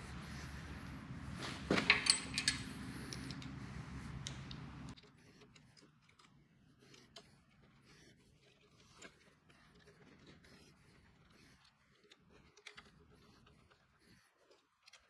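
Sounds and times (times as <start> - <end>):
low steady hum: 0.0 - 5.0
small clicks and metal taps: 1.7 - 7.3, 11.6 - 15.0.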